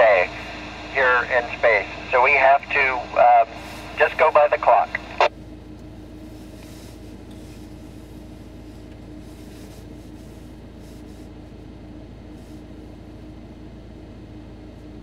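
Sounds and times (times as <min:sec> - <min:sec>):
faint constant tone: 0:00.0 - 0:05.4
low hum: 0:00.0 - 0:10.4.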